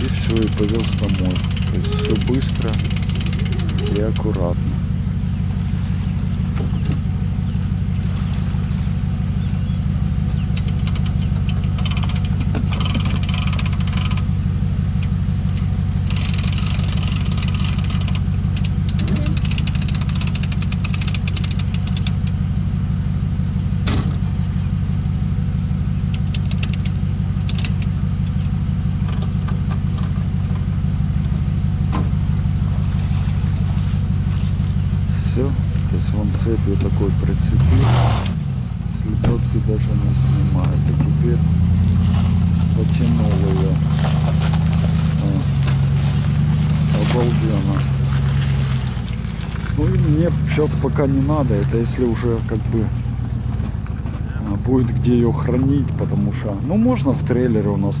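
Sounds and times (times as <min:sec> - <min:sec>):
rapid clicking: 0:00.0 - 0:04.3, 0:10.5 - 0:14.3, 0:15.0 - 0:22.4, 0:26.1 - 0:27.9
pickup truck engine idling: 0:00.0 - 0:58.0.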